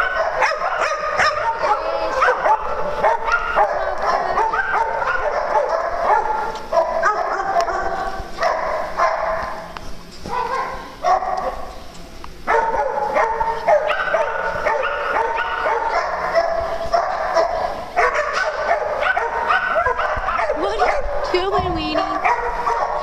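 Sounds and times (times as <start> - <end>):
small dogs yapping and barking: 0.0 - 11.7, 12.4 - 23.0.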